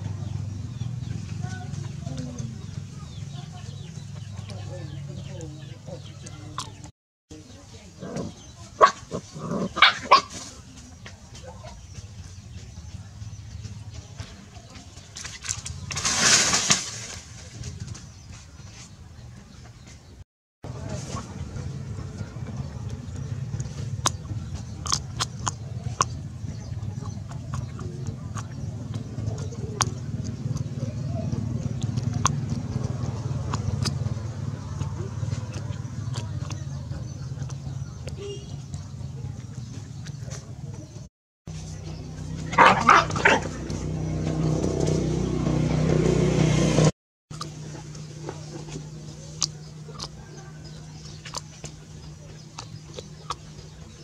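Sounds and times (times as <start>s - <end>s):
vehicle engine humming: 0.0s - 54.0s
puppy chewing food: 21.4s - 41.0s, 47.3s - 54.0s
crunching snaps: 21.9s - 41.0s, 47.3s - 54.0s.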